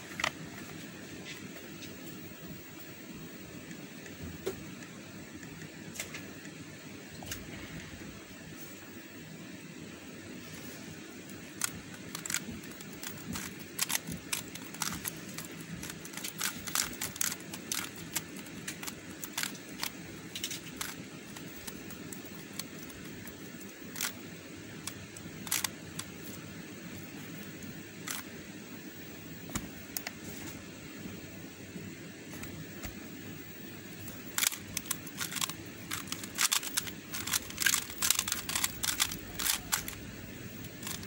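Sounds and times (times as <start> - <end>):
low hiss: 0.0 - 41.0
plastic puzzle clicking: 11.6 - 24.2, 24.8 - 26.2, 34.3 - 40.0, 40.7 - 41.0.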